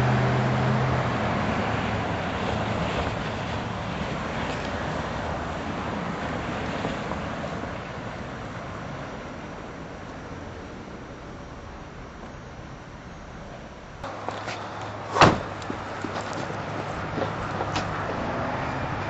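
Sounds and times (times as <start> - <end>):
low engine hum: 0.0 - 19.0
road and wind noise: 0.0 - 19.0.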